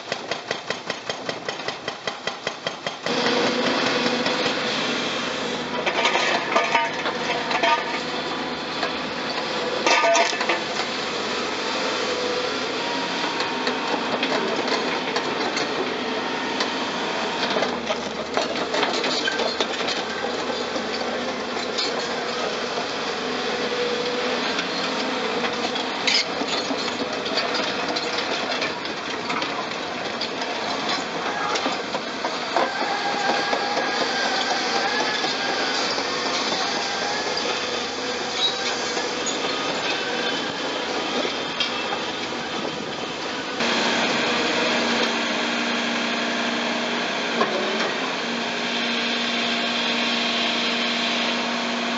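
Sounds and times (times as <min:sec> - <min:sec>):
diesel engines running: 0:03.0 - 0:51.9
clatter of metal and breaking concrete: 0:05.8 - 0:08.0, 0:09.8 - 0:10.6, 0:25.6 - 0:32.0.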